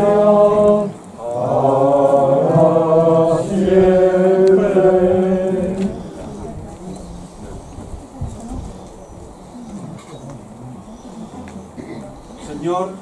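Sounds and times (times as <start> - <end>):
men singing chant: 0.0 - 6.4.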